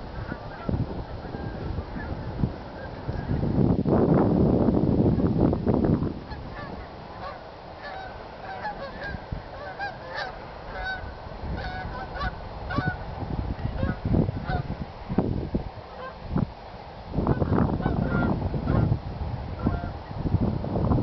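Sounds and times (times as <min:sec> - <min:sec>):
microphone rumble: 0:00.0 - 0:21.0
geese honking: 0:00.1 - 0:03.4, 0:06.2 - 0:13.0, 0:13.7 - 0:14.7, 0:15.9 - 0:16.2, 0:17.3 - 0:18.9, 0:19.6 - 0:20.0.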